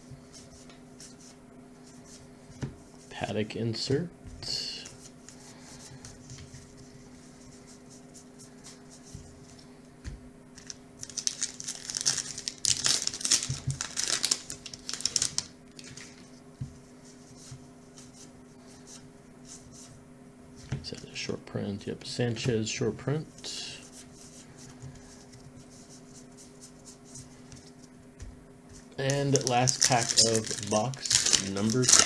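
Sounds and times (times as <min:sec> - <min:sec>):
wrapper tearing and crinkling: 0:10.6 - 0:16.2, 0:29.0 - 0:32.0.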